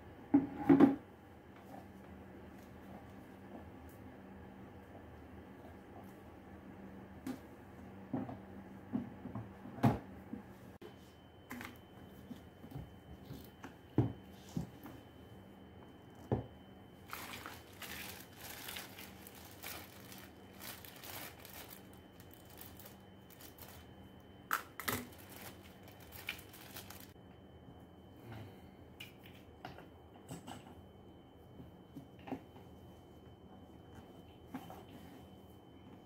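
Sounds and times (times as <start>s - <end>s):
plastic bags crinkling: 17.0s - 23.9s, 24.6s - 27.2s.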